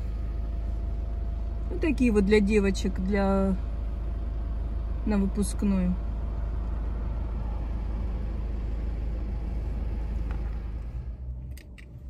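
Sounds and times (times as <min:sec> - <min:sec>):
car cabin rumble: 0:00.0 - 0:12.0
sharp clicks: 0:11.5 - 0:12.0.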